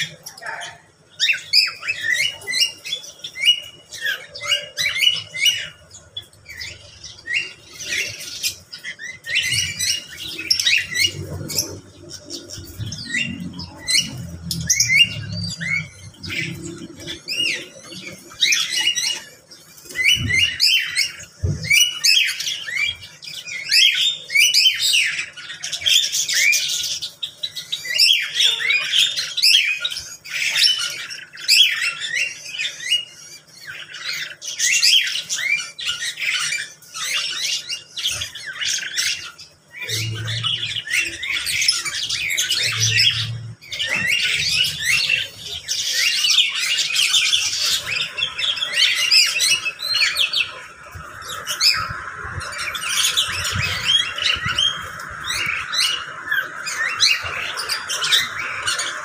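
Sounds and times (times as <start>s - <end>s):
chorus of bird calls: 0.0s - 59.0s.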